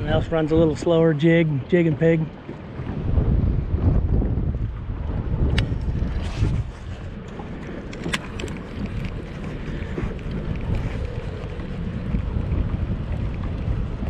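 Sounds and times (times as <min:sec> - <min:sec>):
wind buffeting microphone: 0:00.0 - 0:14.0
light clicks: 0:07.2 - 0:09.2.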